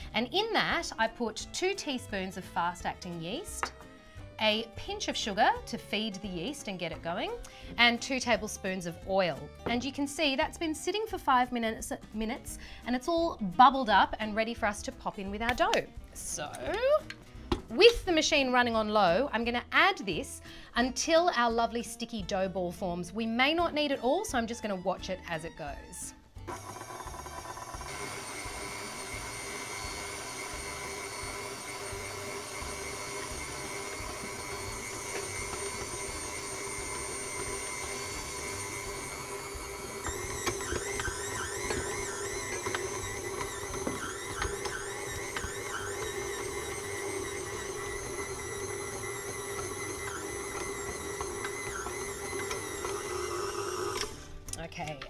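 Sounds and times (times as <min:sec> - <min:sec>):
stand mixer motor whine: 0:26.5 - 0:54.3.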